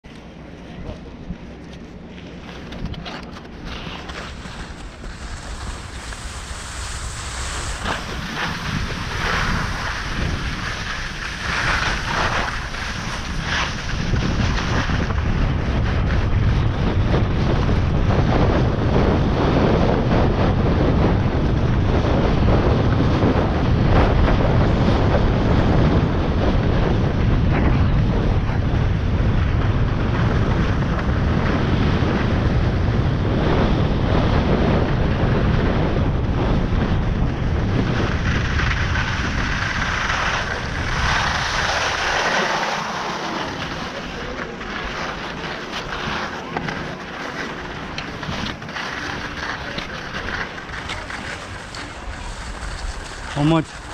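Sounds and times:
wind buffeting microphone: 0.0s - 53.9s
skis hissing over snow: 3.7s - 15.1s, 38.2s - 53.9s.

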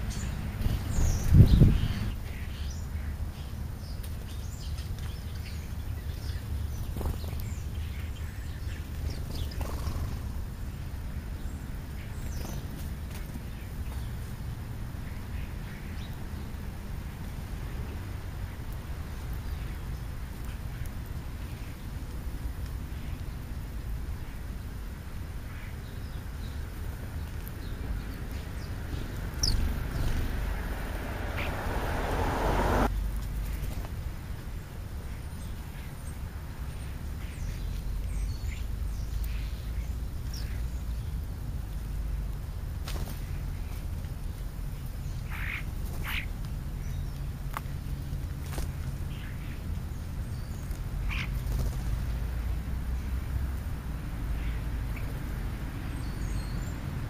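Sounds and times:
sparrows chirping: 0.0s - 41.9s, 42.9s - 57.0s
steady low rumble: 26.4s - 34.3s.

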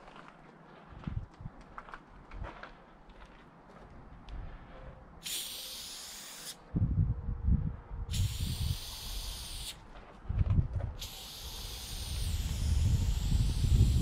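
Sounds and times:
spray paint can hissing: 5.2s - 6.6s, 8.1s - 9.8s, 11.0s - 14.0s
loud low rumbling: 6.7s - 8.2s.

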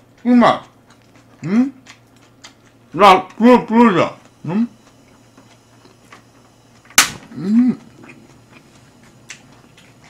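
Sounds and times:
person saying hm: 7.3s - 8.0s.

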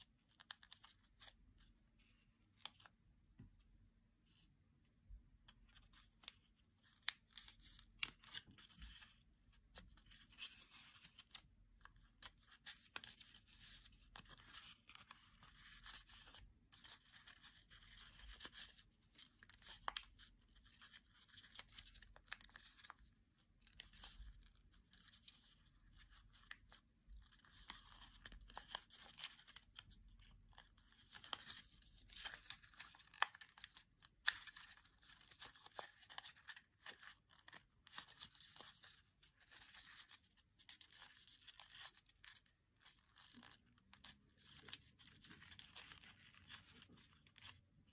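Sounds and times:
paper rustling and crackling: 5.7s - 47.9s.

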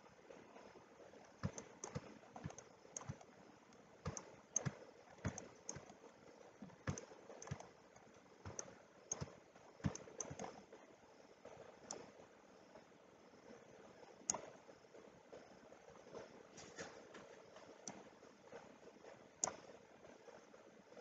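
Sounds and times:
computer mouse and keyboard clicking: 1.2s - 10.8s, 14.2s - 14.6s, 16.2s - 18.1s, 19.4s - 19.8s.

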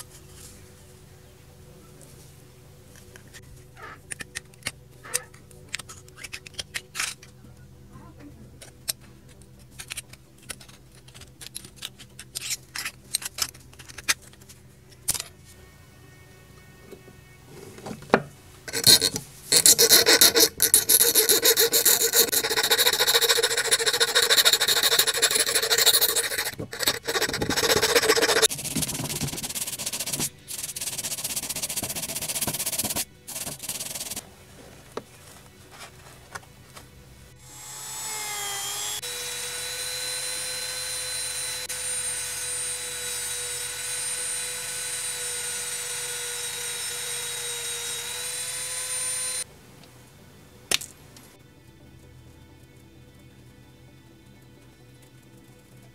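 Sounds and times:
file scraping metal: 18.7s - 34.2s
rotary tool whining: 18.7s - 34.2s, 37.4s - 49.5s.

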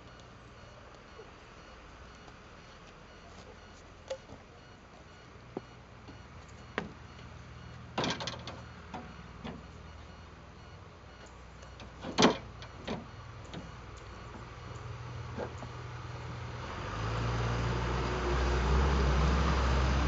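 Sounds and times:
low steady hum: 0.0s - 20.0s
knocks and clunks: 5.5s - 9.7s, 11.7s - 14.5s.

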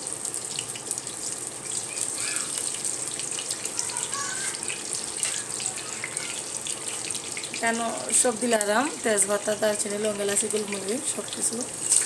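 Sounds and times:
garlic frying in hot oil: 0.0s - 12.0s.

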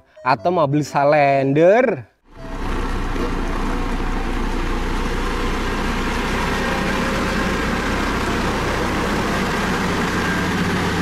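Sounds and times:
road roller diesel engine running: 2.3s - 11.0s.

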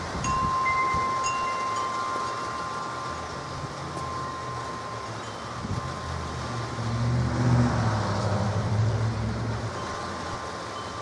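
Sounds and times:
wind chimes ringing: 0.0s - 7.0s, 9.6s - 11.0s
rain: 0.0s - 11.0s
wind: 0.0s - 11.0s.

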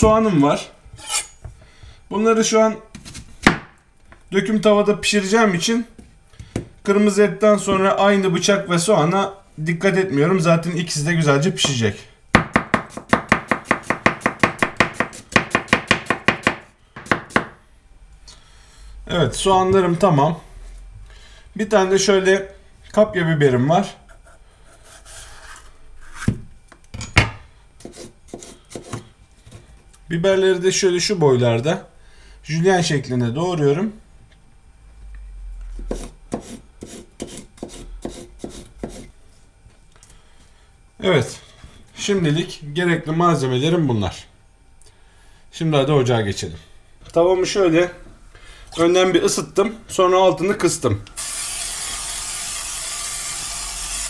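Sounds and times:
knife slicing onion on cutting board: 12.4s - 17.6s, 27.8s - 29.1s, 35.8s - 39.1s.

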